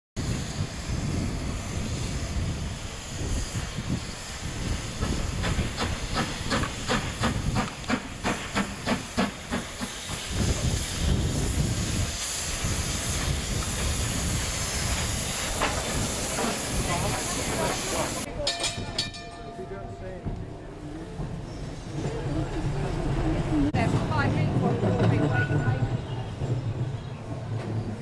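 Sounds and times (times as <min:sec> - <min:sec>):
sharp steam puffs: 0:00.2 - 0:18.4
steam hissing: 0:00.2 - 0:18.4
locomotive low rumble: 0:00.2 - 0:28.0.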